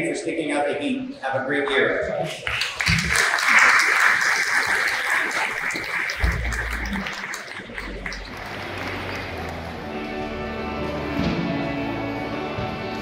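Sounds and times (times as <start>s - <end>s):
audience applauding: 2.4s - 10.4s
pipe organ low notes: 5.8s - 13.0s.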